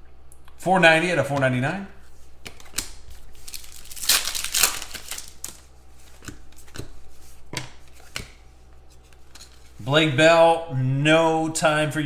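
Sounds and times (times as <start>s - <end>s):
cards rustling: 1.2s - 9.8s
cards clicking and tapping: 2.4s - 8.4s.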